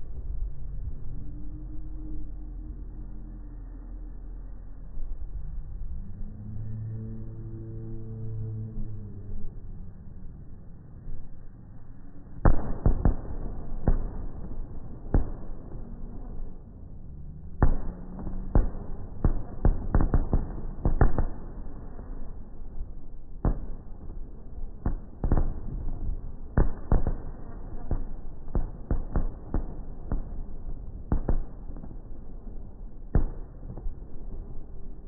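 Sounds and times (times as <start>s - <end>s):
fireworks bursting: 17.6s - 22.2s, 23.4s - 34.9s.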